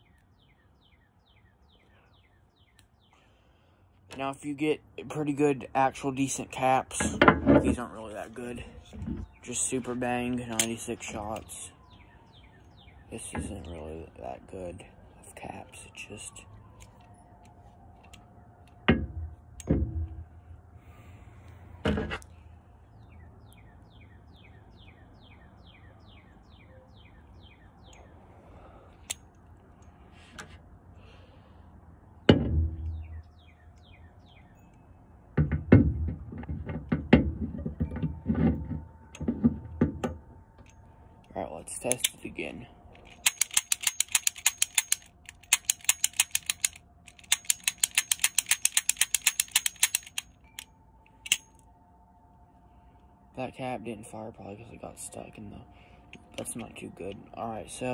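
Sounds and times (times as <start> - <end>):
bird chirping: 0.0 - 3.4, 7.9 - 14.4, 22.3 - 28.4, 32.8 - 35.0
sharp click: 43.1 - 51.6.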